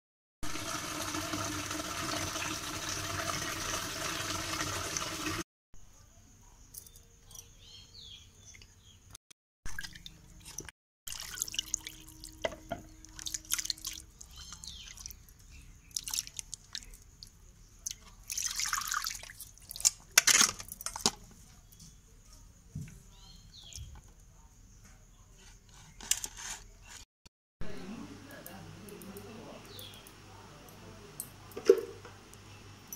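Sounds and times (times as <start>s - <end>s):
water splashing and sloshing: 9.6s - 20.1s.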